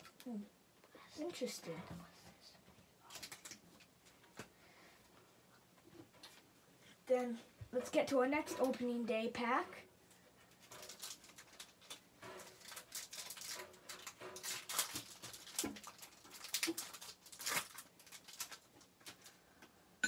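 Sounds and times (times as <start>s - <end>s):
foil wrapper crinkling and tearing: 3.1s - 3.6s, 10.6s - 19.4s.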